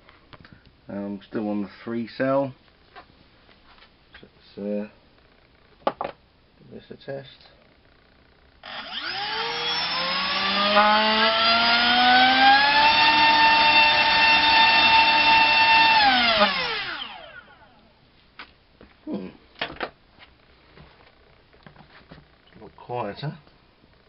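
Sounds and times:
drone motor whine: 0:08.6 - 0:17.9.

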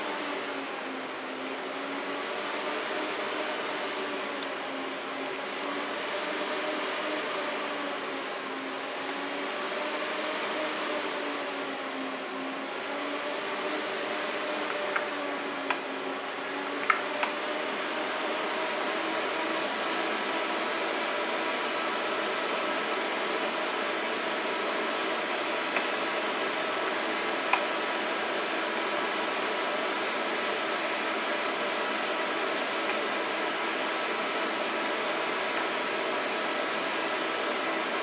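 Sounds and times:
computer fans whirring: 0:00.0 - 0:38.0.

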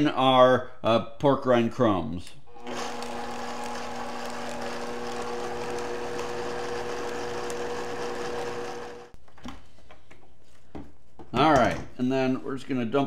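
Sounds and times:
blender motor humming: 0:02.5 - 0:09.2.

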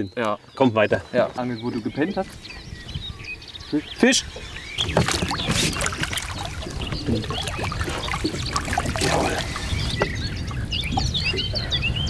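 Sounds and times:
birds chirping: 0:00.0 - 0:12.0
water splashing and trickling: 0:04.8 - 0:11.7.

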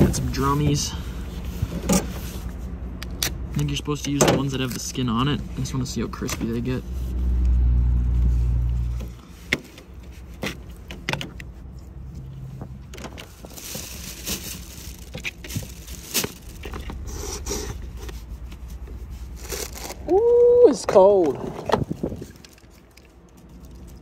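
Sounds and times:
plastic bag rustling: 0:12.8 - 0:20.2.

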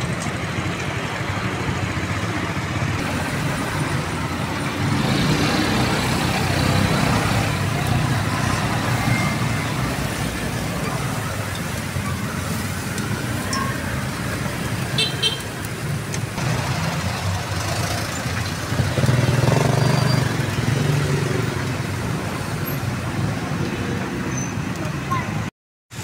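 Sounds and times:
street traffic: 0:00.0 - 0:26.0
motor vehicle passing: 0:02.0 - 0:13.4, 0:15.5 - 0:24.0.

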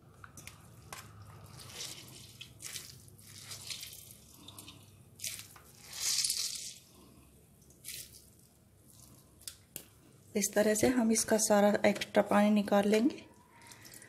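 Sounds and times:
wet squelching of squeezed gourd: 0:00.2 - 0:09.8.

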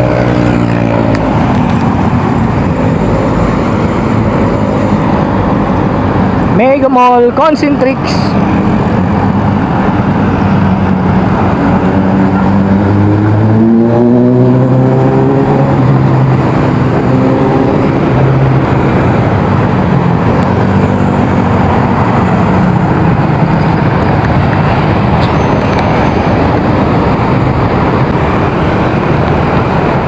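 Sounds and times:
heavy road traffic: 0:00.0 - 0:30.0
nearby engine speeding up: 0:08.5 - 0:30.0.

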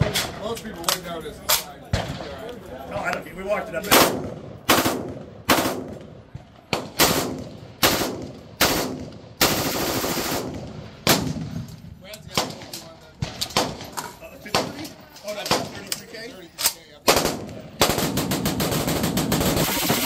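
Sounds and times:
rifle shots with echo: 0:03.9 - 0:11.7, 0:12.3 - 0:15.9, 0:16.6 - 0:20.0.

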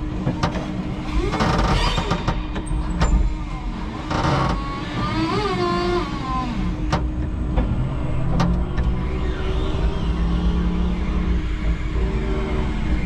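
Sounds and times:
electric motor whine: 0:07.8 - 0:13.0
higher whine rising and falling: 0:07.8 - 0:13.0.

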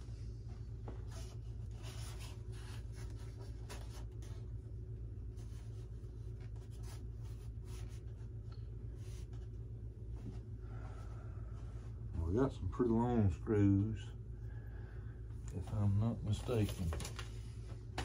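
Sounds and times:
steady low hum: 0:00.0 - 0:18.0
foam model plane being handled: 0:00.5 - 0:10.6.

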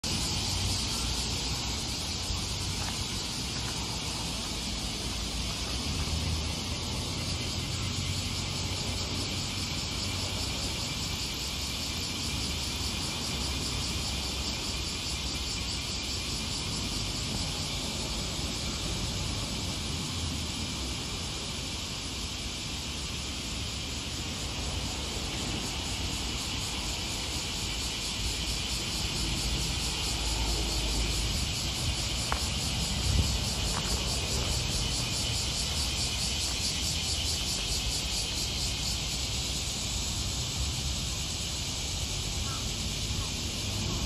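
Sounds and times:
insects chirring: 0:00.0 - 0:44.0.

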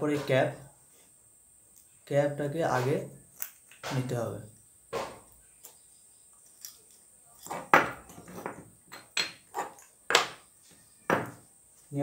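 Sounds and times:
small parts knocking and clattering: 0:05.0 - 0:10.5.

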